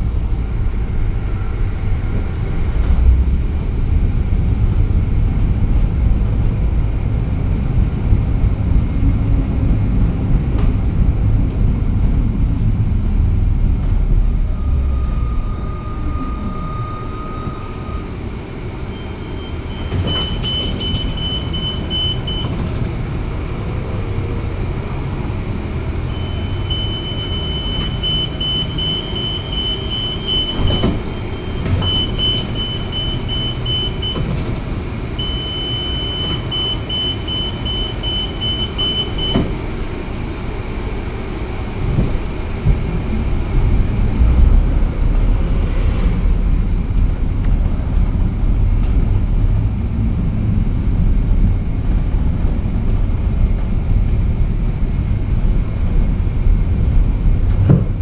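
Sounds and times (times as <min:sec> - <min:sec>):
tram rumbling along track: 0:00.0 - 0:58.0
short steady tone: 0:14.0 - 0:18.2, 0:26.1 - 0:34.2.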